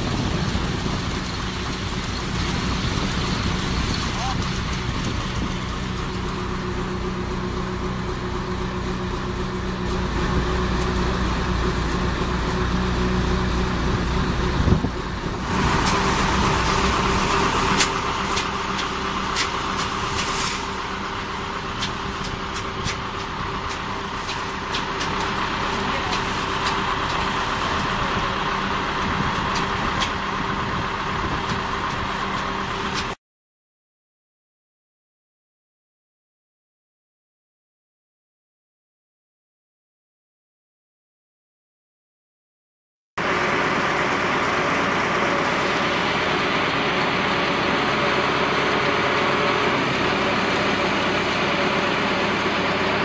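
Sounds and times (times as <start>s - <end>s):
boat engine running: 0.0s - 33.2s.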